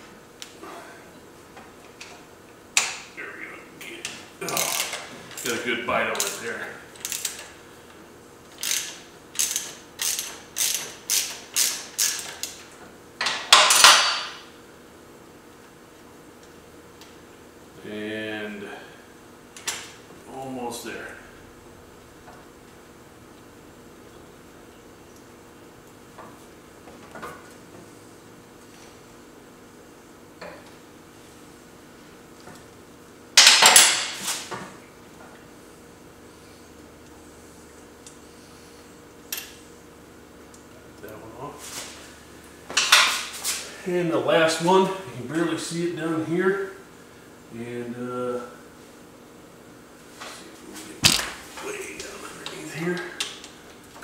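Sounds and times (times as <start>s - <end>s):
socket ratchet clicking: 8.6s - 12.6s.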